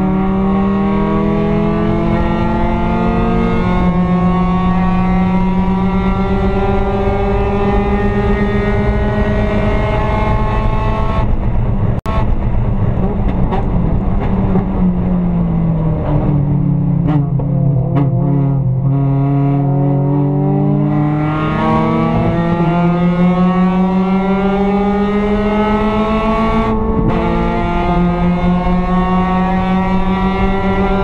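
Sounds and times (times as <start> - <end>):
race car engine accelerating: 0.0 - 31.0.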